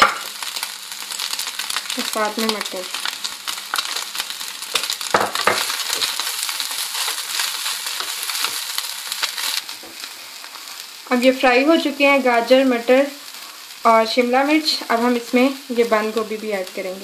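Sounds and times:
food sizzling in a frying pan: 0:00.0 - 0:17.0
spatula scraping a pan: 0:04.7 - 0:10.1.

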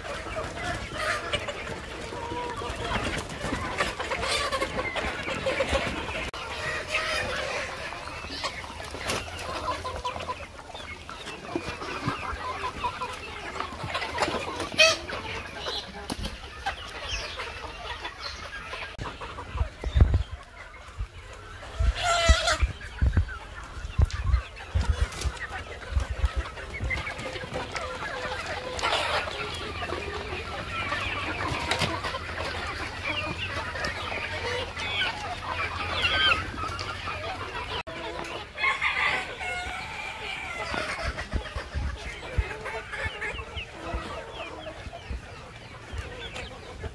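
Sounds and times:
chickens clucking: 0:00.0 - 0:46.9.

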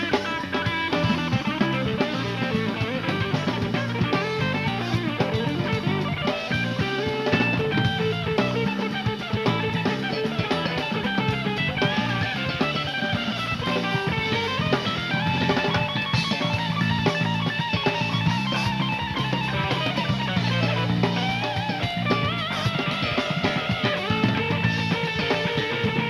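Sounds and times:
drum kit: 0:00.0 - 0:26.0
electric bass: 0:00.0 - 0:26.0
electric guitar lead lines: 0:00.0 - 0:26.0.

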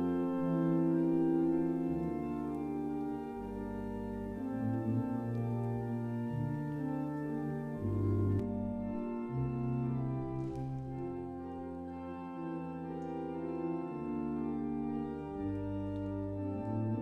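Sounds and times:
organ music with slow chords: 0:00.0 - 0:17.0.

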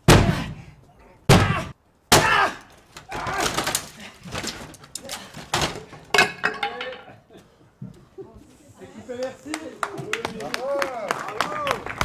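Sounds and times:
wood cracking and splintering: 0:02.1 - 0:06.0.

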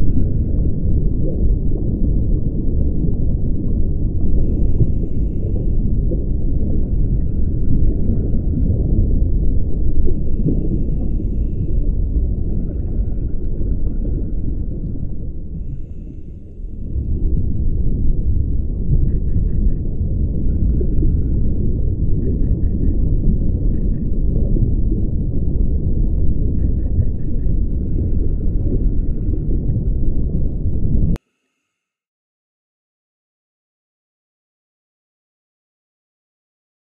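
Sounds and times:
low underwater rumble: 0:00.0 - 0:31.2.

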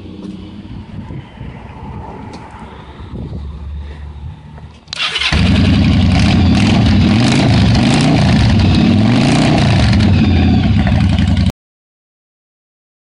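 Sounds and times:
motorcycle engine idling: 0:05.1 - 0:07.8, 0:09.7 - 0:11.5.

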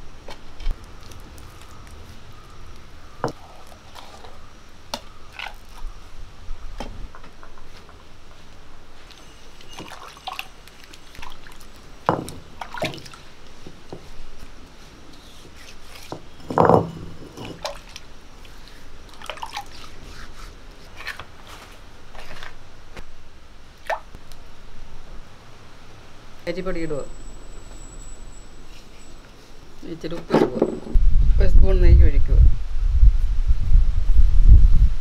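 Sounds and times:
hand squelching thick batter: 0:17.6 - 0:22.6.

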